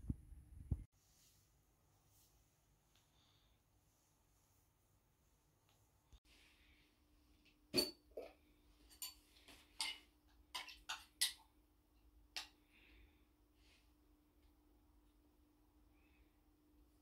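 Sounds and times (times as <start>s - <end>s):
faint steady hum: 11.4s - 17.0s.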